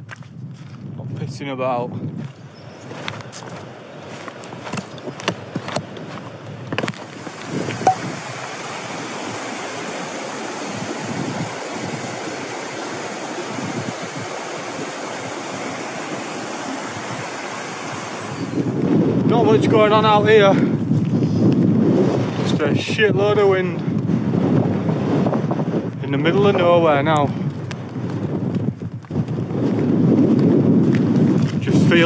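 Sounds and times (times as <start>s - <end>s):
stream rushing over rocks: 7.0s - 18.8s.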